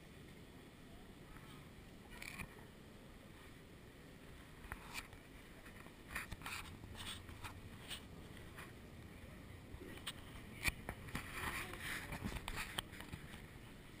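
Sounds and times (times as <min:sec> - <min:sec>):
soft clicks and rustles: 0:04.2 - 0:14.0.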